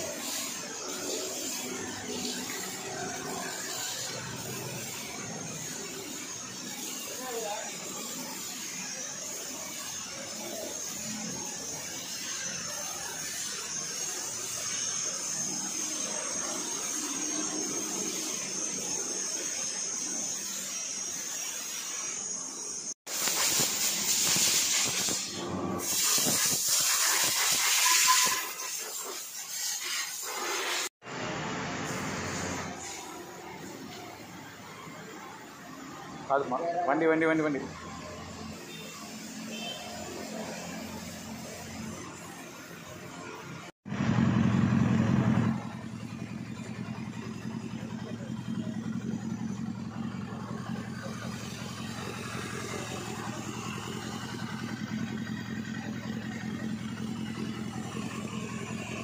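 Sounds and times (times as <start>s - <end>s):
pressure washer water jet hissing: 0.0s - 35.6s, 37.3s - 59.0s.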